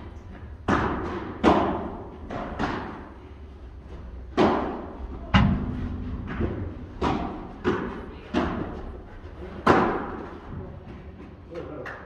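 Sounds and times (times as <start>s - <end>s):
ball struck by rackets: 0.6s - 3.2s, 4.3s - 8.8s, 9.6s - 10.2s.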